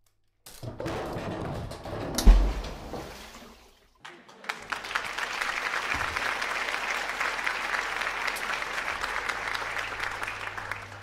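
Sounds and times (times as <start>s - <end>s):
crowd applause: 4.0s - 11.0s.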